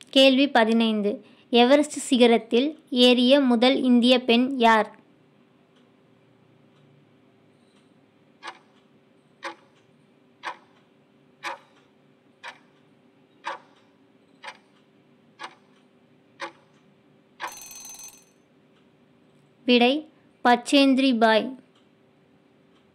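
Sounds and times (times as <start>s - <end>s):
timer ticking: 7.7s - 18.9s
brief ring: 17.4s - 18.4s.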